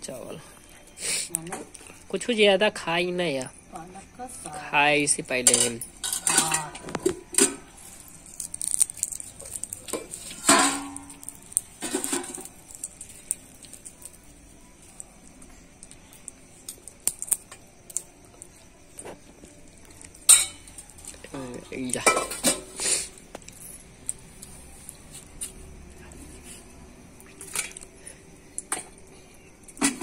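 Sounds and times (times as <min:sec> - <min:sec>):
steel plates clinking: 0:05.4 - 0:07.7, 0:09.9 - 0:12.6, 0:20.2 - 0:20.8.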